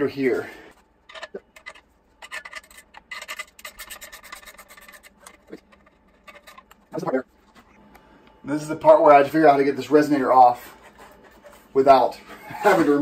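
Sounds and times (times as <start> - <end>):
metal rubbing: 1.1 - 7.8.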